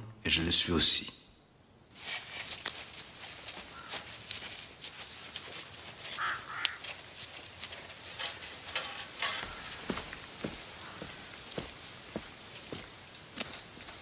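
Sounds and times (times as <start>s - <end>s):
footsteps crunching dry leaves: 1.9s - 14.0s
short bird-like calls: 6.1s - 6.8s.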